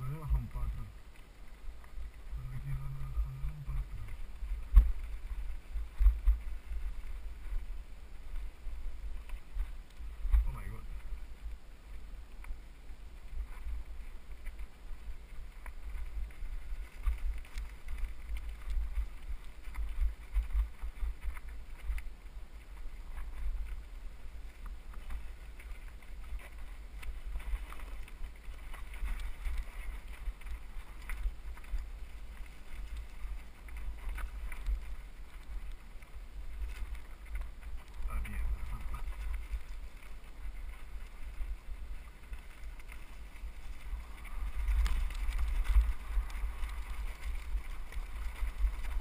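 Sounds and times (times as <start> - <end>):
rattles and knocks over stones: 42.2 - 49.0.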